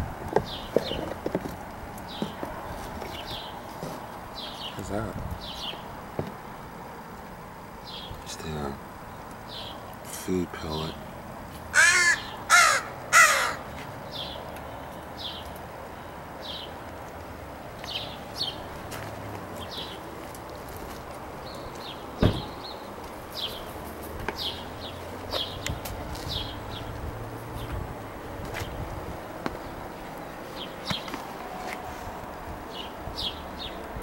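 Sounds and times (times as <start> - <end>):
faint high calls: 11.7 - 13.7
crows cawing: 11.7 - 13.8
sharp knock: 22.2 - 22.5.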